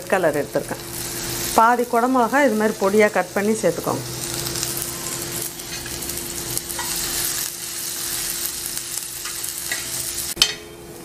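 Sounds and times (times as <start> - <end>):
vegetables sizzling in oil: 0.0 - 11.0
spoon scraping a pan: 5.0 - 6.0, 6.6 - 7.3, 9.2 - 10.7.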